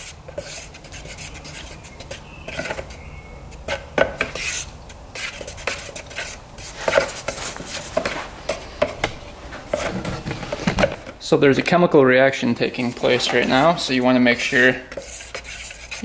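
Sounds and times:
paint stirrer scraping bucket: 3.6s - 11.7s, 12.4s - 16.0s.

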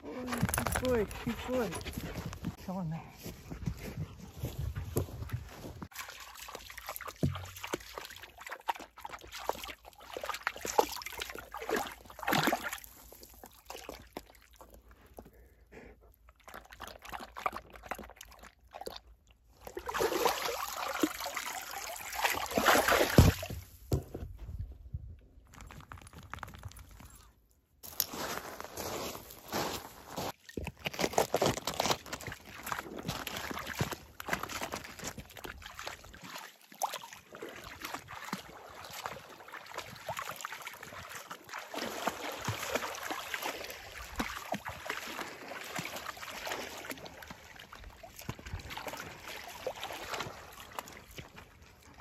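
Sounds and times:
water sloshing and trickling: 0.1s - 24.6s, 25.4s - 52.0s.

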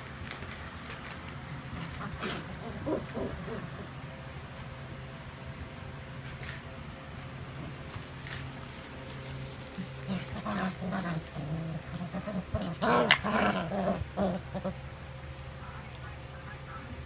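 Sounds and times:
puppy growls: 1.6s - 4.0s, 9.7s - 14.8s.

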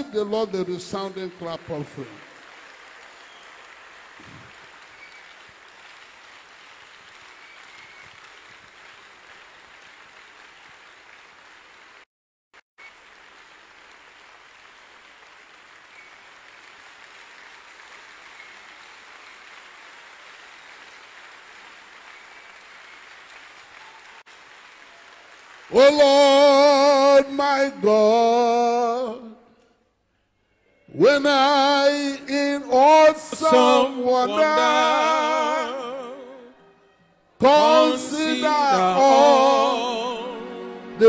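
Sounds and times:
congregation clapping: 0.0s - 12.1s, 12.8s - 29.3s, 30.9s - 36.4s, 37.4s - 41.0s.

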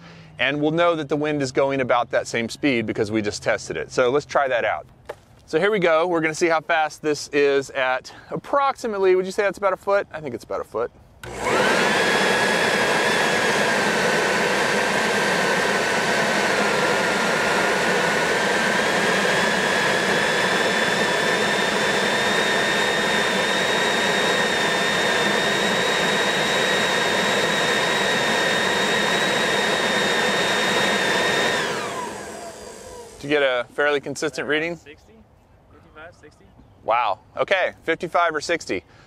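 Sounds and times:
leaf blower whining: 0.0s - 0.4s, 11.2s - 33.8s.

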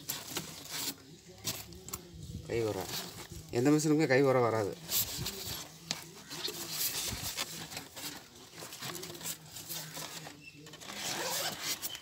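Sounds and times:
fabric case rustling: 4.6s - 12.0s.

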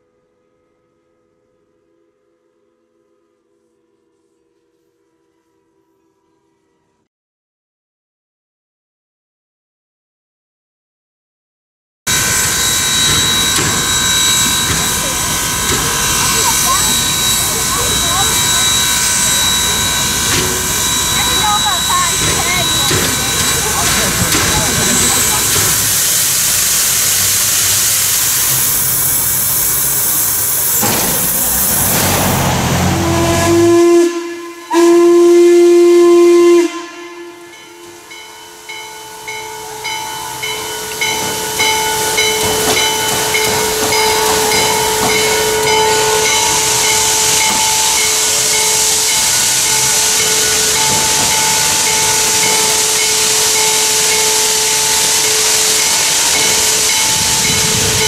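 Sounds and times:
locomotive bell ringing: 12.1s - 26.5s, 37.2s - 58.0s
steam hissing: 12.1s - 58.0s
steam whistle blasts: 12.1s - 58.0s.

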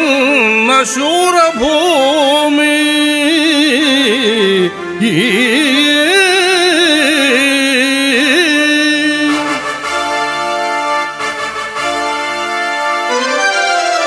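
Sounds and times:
ornamented melodic line: 4.0s - 14.0s
held chords: 9.2s - 14.0s.

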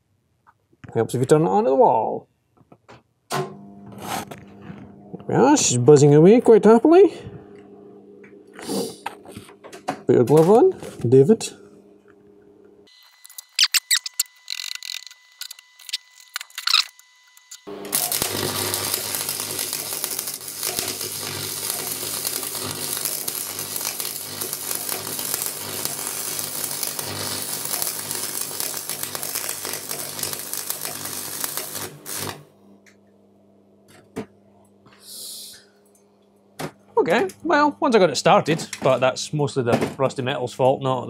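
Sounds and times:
welder mains hum: 3.3s - 36.0s
welding rod scratching: 3.9s - 4.4s, 13.0s - 32.4s
welding arc crackling: 12.9s - 32.5s.

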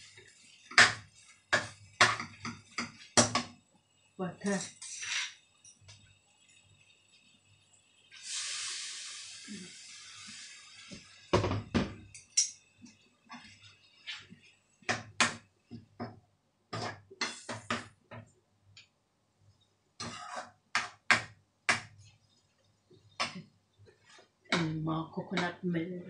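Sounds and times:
spoon scraping in frying pan: 4.7s - 5.8s, 16.7s - 17.8s, 20.0s - 21.0s.

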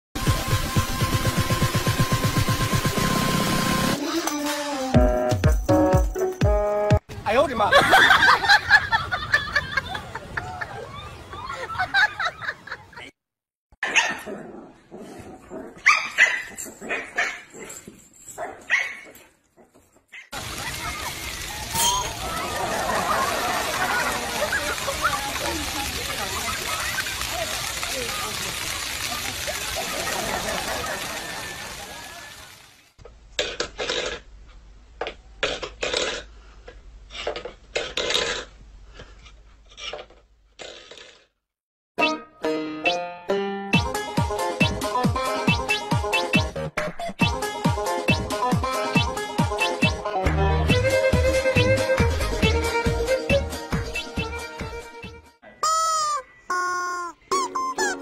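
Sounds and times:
dog barking and yipping: 13.8s - 14.3s, 15.8s - 20.4s.

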